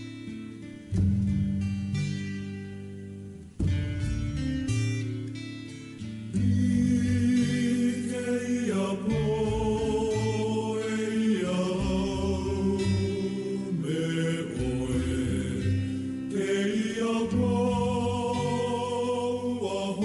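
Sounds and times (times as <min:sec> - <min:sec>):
song with chant-like vocals: 0:06.3 - 0:20.0.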